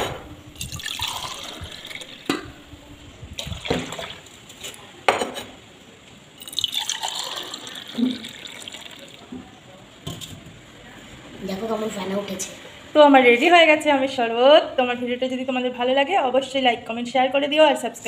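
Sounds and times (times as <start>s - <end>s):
liquid pouring and splashing: 0.6s - 2.3s, 3.4s - 4.4s, 6.4s - 9.3s.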